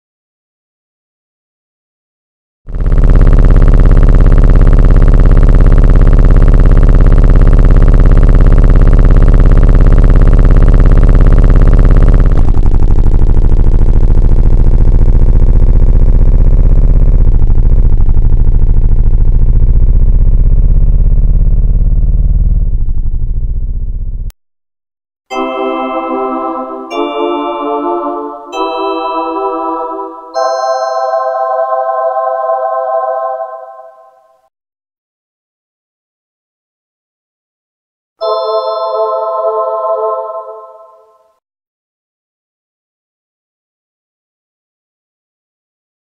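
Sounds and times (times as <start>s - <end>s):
loud engine running: 2.7s - 24.2s.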